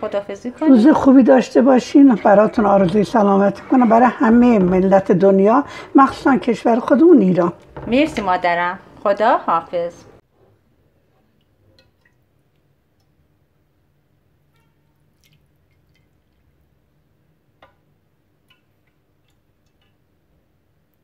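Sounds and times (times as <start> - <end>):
ladle clicks and drips: 11.3 - 13.2, 14.5 - 16.7, 17.6 - 20.1.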